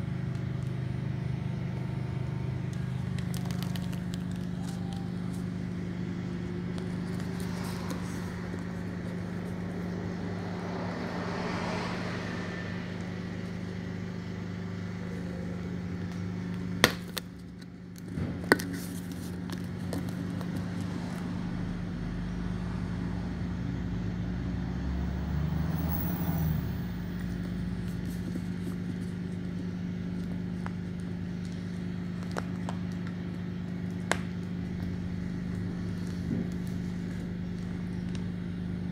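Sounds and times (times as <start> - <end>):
deep rumble of bus pulling away: 0.0 - 38.9
electric bus drivetrain hum: 0.0 - 38.9
road noise: 0.0 - 38.9.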